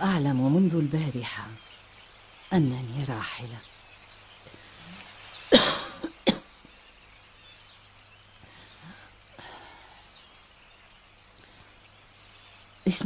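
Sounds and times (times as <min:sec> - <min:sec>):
person coughing: 0:05.6 - 0:06.4
soft breath: 0:08.4 - 0:10.2.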